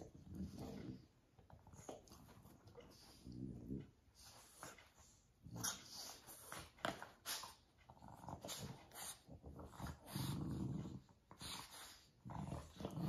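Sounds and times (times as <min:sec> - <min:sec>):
dog growling: 0:00.0 - 0:01.2, 0:02.9 - 0:04.0, 0:07.8 - 0:13.0
dogs snuffling and rustling: 0:00.0 - 0:13.0.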